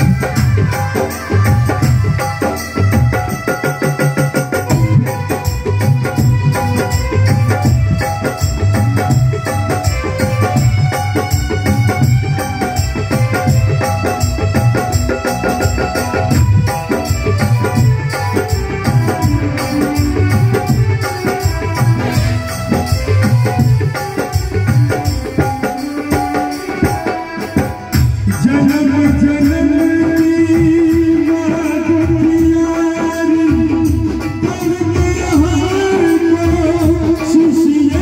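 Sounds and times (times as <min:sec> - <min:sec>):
live band with drums and keyboards: 0:00.0 - 0:38.0.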